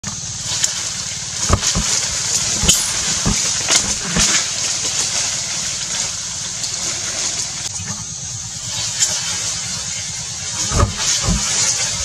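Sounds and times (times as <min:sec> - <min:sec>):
short knocks or rustles: 0:01.4 - 0:04.5, 0:10.6 - 0:12.0.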